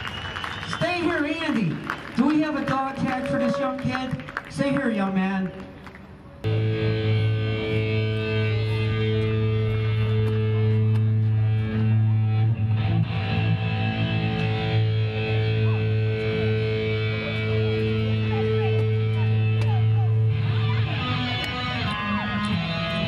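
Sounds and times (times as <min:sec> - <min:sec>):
electric guitar through amplifier: 0:05.5 - 0:23.0.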